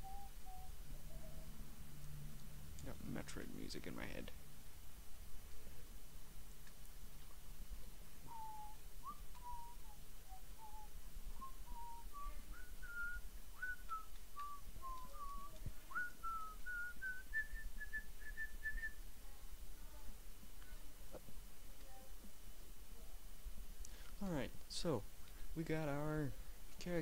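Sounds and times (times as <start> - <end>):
man whistling a tune: 0.0 - 0.7, 8.3 - 19.0.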